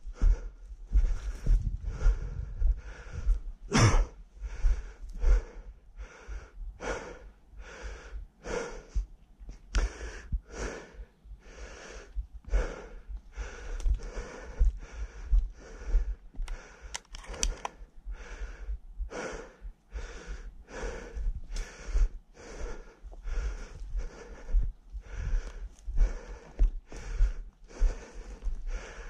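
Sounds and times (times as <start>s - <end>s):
man breathing hard: 0.0s - 29.0s.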